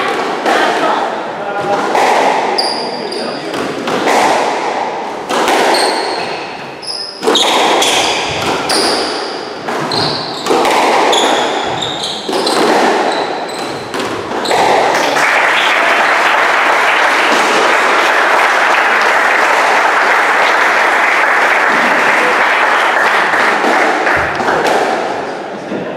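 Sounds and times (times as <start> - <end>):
squash ball hitting rackets and walls: 0.0 - 15.7, 17.2 - 18.0, 23.2 - 25.4
applause: 14.9 - 24.7.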